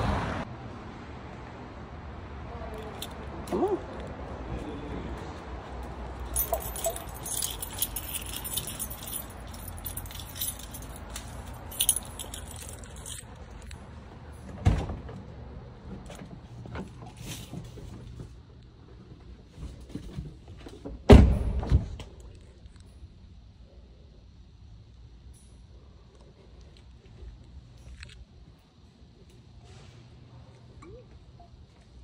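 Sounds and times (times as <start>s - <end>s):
light metal jingling: 6.2s - 13.7s.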